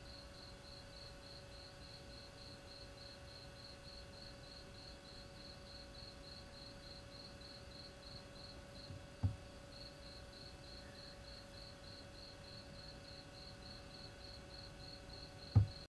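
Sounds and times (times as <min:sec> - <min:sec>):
cricket chirping: 0:00.0 - 0:15.9
faint steady hum: 0:00.0 - 0:15.9
low thump: 0:09.2 - 0:09.4, 0:15.6 - 0:15.8.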